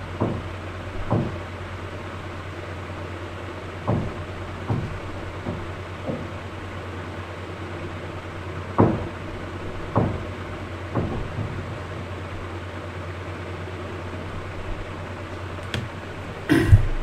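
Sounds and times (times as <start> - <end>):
low background hum: 0.0 - 17.0
dull knocks: 1.0 - 1.4, 3.9 - 6.4, 8.8 - 9.2, 9.9 - 10.3, 10.9 - 11.8.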